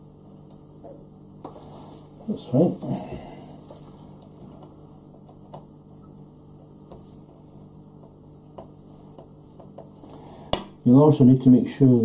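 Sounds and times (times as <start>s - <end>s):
steady low hum: 0.0s - 12.0s
gloved hand rubbing a sheet: 1.4s - 4.4s.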